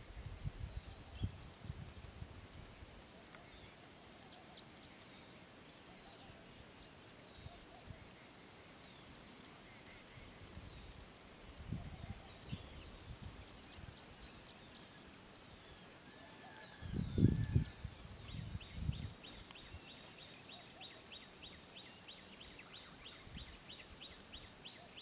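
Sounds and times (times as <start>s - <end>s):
wind buffeting microphone: 0.0s - 2.8s, 11.5s - 13.9s, 16.8s - 19.2s.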